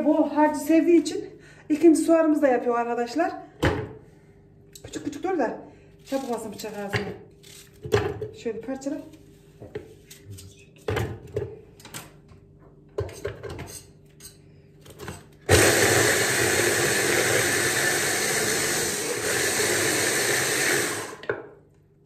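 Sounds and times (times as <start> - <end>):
hand blender motor running: 15.5 - 21.2.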